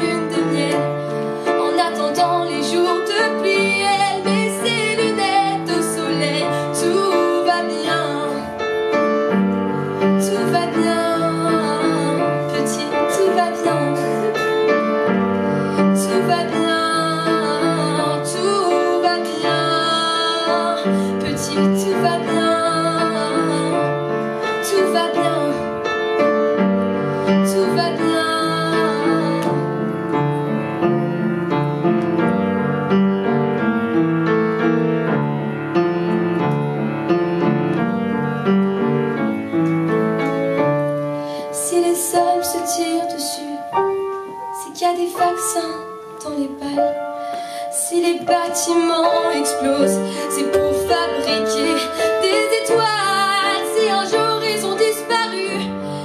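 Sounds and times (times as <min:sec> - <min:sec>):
woman singing: 0:00.0 - 0:08.8, 0:10.0 - 0:25.9, 0:27.2 - 0:30.0, 0:41.4 - 0:55.8
piano chord accompaniment: 0:00.0 - 0:56.0.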